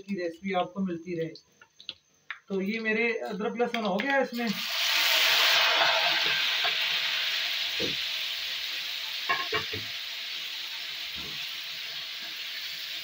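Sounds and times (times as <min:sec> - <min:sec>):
tomatoes sizzling in hot oil: 0:04.4 - 0:13.0.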